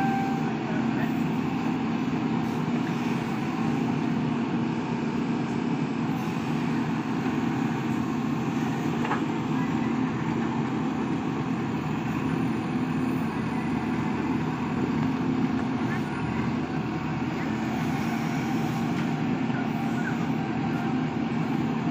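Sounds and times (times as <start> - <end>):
diesel engine running: 0.0 - 21.9.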